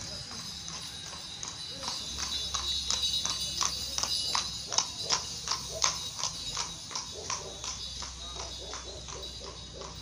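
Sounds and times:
hooves clip-clopping on pavement: 0.0s - 10.0s.

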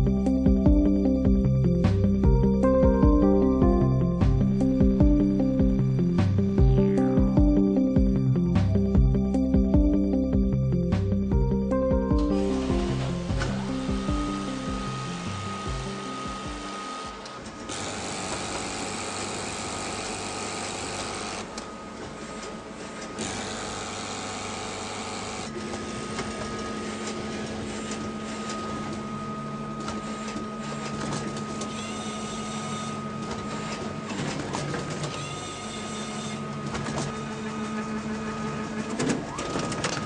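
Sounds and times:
low hum: 0.0s - 17.7s
machine whirring with high whine: 12.2s - 40.0s.

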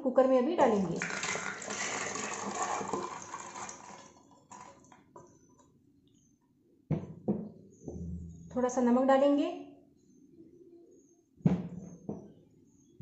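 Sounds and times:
beans pouring into a pot: 0.7s - 4.8s.

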